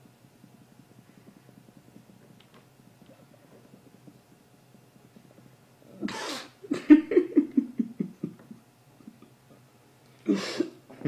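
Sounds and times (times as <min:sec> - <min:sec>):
man laughing: 0:06.7 - 0:09.2.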